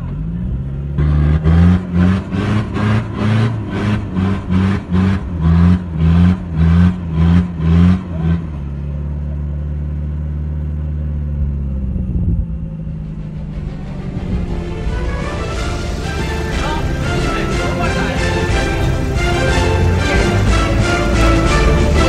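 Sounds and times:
engine revving: 0:00.0 - 0:22.0.

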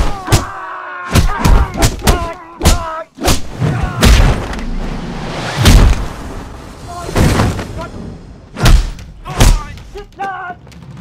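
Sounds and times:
punch and kick hits: 0:00.0 - 0:04.5, 0:05.6 - 0:06.1, 0:08.6 - 0:09.8
whoosh: 0:03.4 - 0:09.0
heavy hit: 0:04.0 - 0:07.7.

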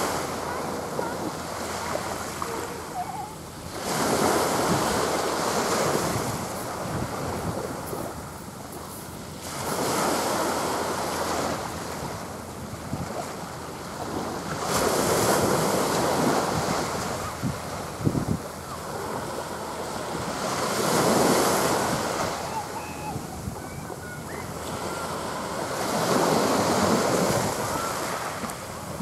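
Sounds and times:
waves washing on shore: 0:00.0 - 0:29.0
wind buffeting microphone: 0:03.8 - 0:10.7, 0:14.0 - 0:19.3, 0:20.0 - 0:29.0.

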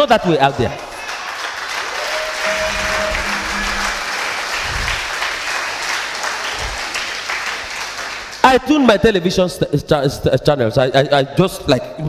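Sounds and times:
congregation clapping: 0:00.0 - 0:08.8
faint held musical note: 0:02.1 - 0:05.1.

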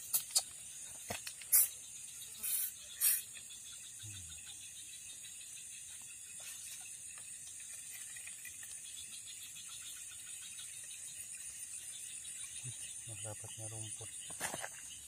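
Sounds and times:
high-pitched insect chorus: 0:00.0 - 0:15.0
rapid pulsing insect trill: 0:00.0 - 0:15.0.

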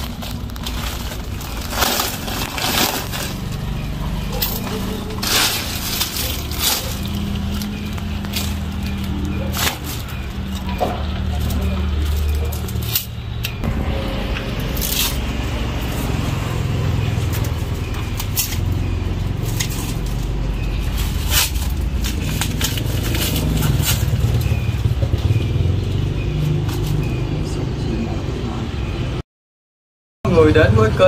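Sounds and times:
plastic sheeting crinkling: 0:00.0 - 0:12.9
steady low rumble: 0:12.1 - 0:25.2.

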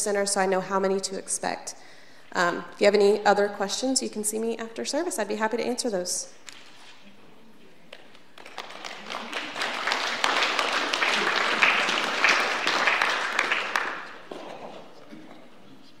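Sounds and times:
congregation applauding: 0:08.3 - 0:15.0.

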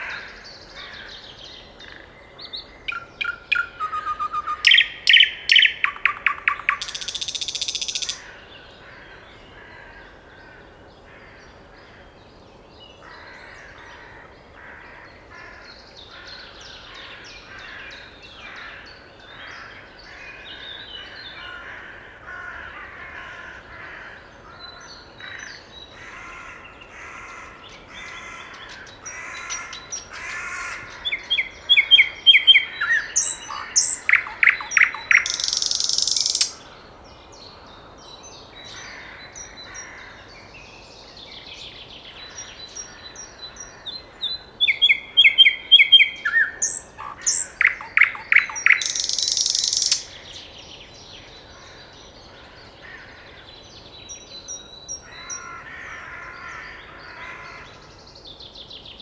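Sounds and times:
nightingale singing: 0:00.0 - 0:08.8, 0:27.5 - 0:37.3, 0:38.0 - 0:52.8.

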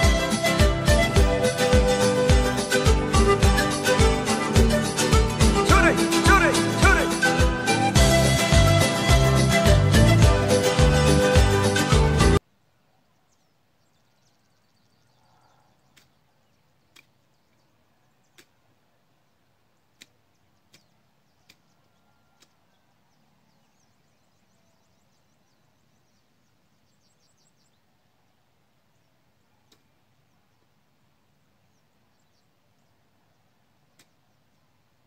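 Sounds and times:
background music: 0:00.0 - 0:12.4
distant birds chirping: 0:00.0 - 0:35.0
sharp clicks: 0:16.9 - 0:17.2, 0:20.0 - 0:21.7, 0:33.9 - 0:34.2.

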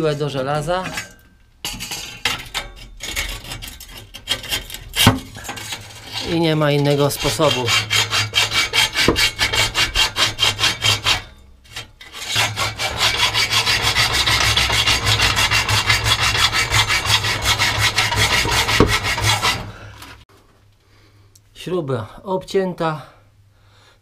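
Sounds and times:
hacksaw cutting metal bolt: 0:00.9 - 0:11.3, 0:12.1 - 0:19.7.

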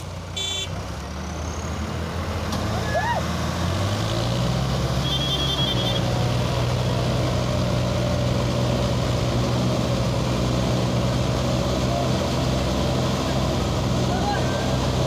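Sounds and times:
diesel engines running: 0:00.0 - 0:15.0.

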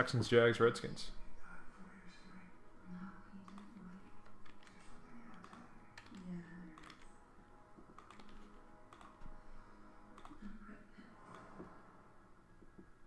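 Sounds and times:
keyboard typing: 0:03.4 - 0:07.2, 0:07.8 - 0:09.4, 0:10.1 - 0:10.5.

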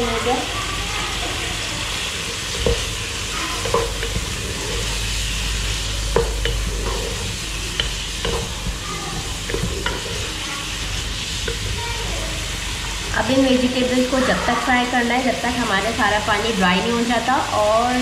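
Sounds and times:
food sizzling in a pot: 0:00.0 - 0:18.0
spatula scraping a pot: 0:02.0 - 0:13.1.

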